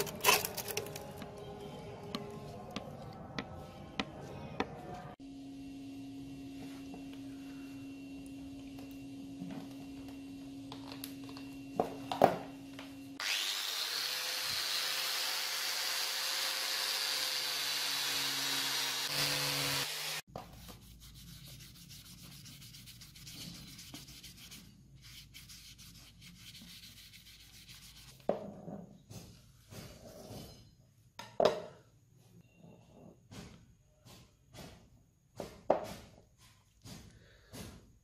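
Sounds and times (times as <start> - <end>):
angle grinder polishing metal: 13.2 - 20.2.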